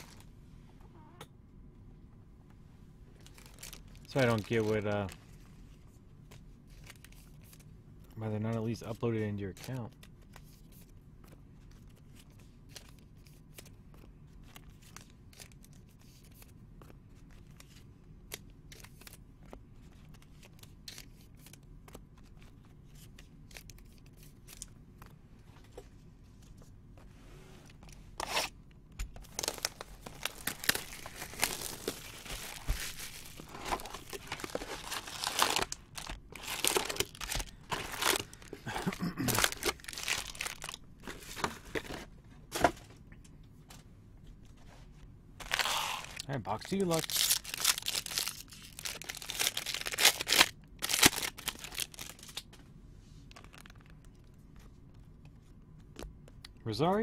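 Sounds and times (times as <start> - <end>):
plastic shrink-wrap tearing and crackling: 3.2 - 5.2, 29.2 - 41.4, 45.4 - 52.4, 53.4 - 53.9.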